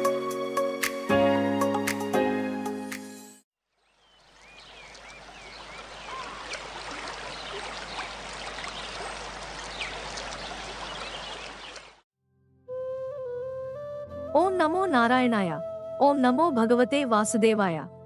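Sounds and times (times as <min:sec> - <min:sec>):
small birds chirping: 0:03.8 - 0:12.0
stream water rushing: 0:04.3 - 0:12.0.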